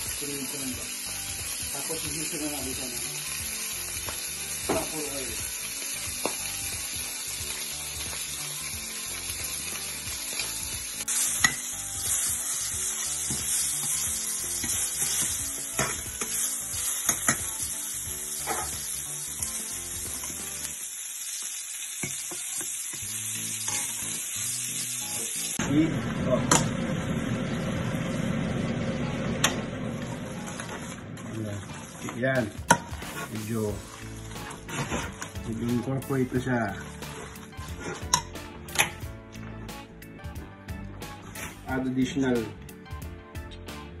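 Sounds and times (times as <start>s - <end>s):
steak sizzling in a pan: 0.0s - 25.9s, 30.0s - 39.4s
metal utensils clinking on pan: 11.4s - 11.7s, 17.0s - 17.5s, 37.9s - 39.0s.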